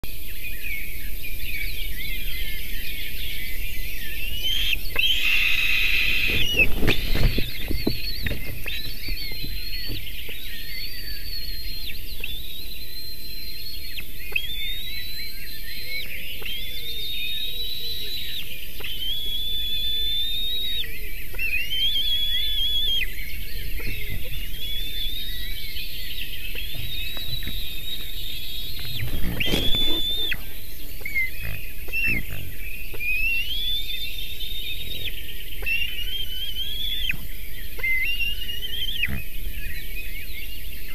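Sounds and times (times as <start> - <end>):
eaglets whistled begging calls: 0.2 - 40.9
loud rustling with low thumps: 5.7 - 10.9, 23.1 - 32.9.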